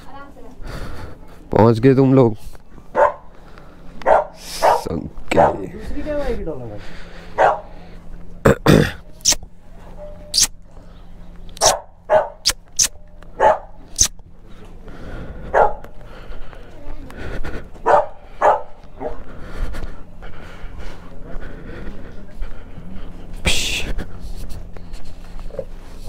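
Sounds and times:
dog barking: 2.9 - 3.3, 4.0 - 5.7, 7.4 - 7.7, 11.6 - 12.6, 13.4 - 14.1, 15.5 - 15.9, 17.8 - 19.2.

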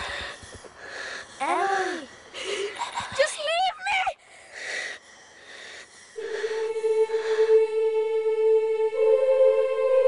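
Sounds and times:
held musical note: 6.2 - 10.0.

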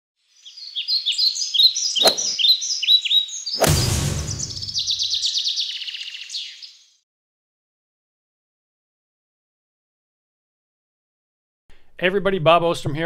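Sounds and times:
birds chirping: 0.2 - 7.0
whoosh with low thud: 2.0 - 2.4, 3.6 - 5.0.

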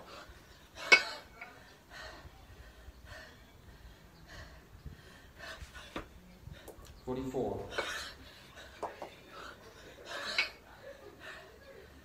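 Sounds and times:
person breathing hard: 0.0 - 6.9.

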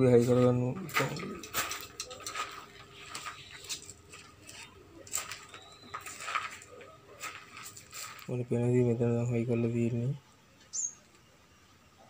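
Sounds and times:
fan parts clicking and tapping: 0.0 - 8.3.

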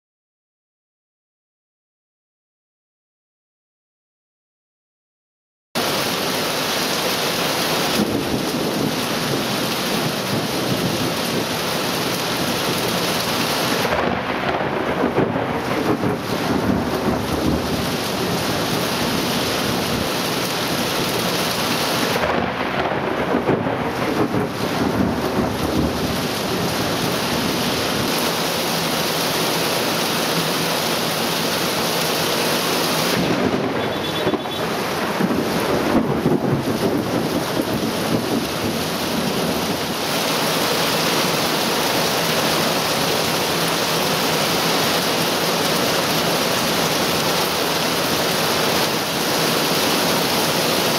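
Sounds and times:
heavy rain downpour hissing: 5.8 - 50.9
thunder rumbling: 7.6 - 40.2.

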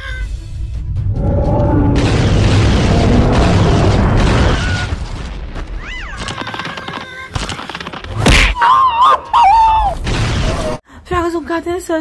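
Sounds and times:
cartoon rumbling blast: 0.7 - 6.0
rising and falling squeal: 0.8 - 4.9.

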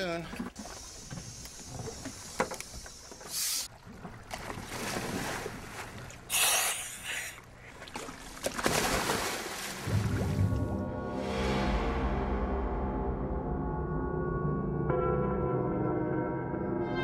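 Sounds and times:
water sloshing: 0.0 - 10.7
wind: 0.0 - 12.8
diver splashing into water: 8.0 - 10.6.

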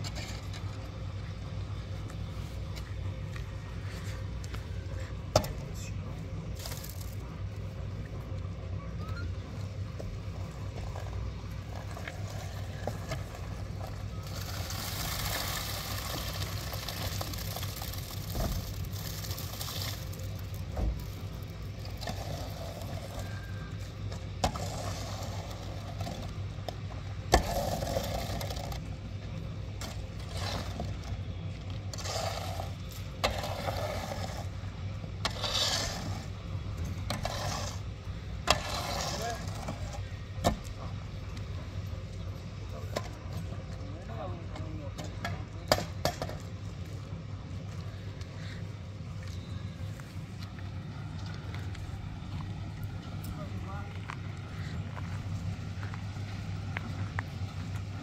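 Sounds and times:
steady low hum: 0.0 - 58.0
wet concrete scraping: 10.8 - 26.4, 27.3 - 29.0, 29.8 - 40.8.

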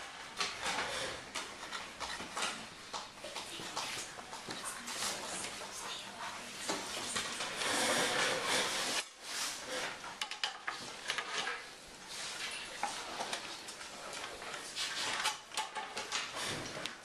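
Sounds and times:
rustling and rubbing: 3.4 - 10.0.

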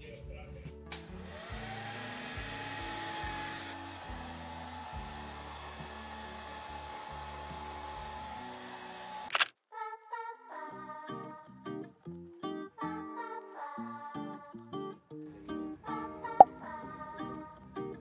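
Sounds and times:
electric blower motor whine: 1.2 - 9.3.

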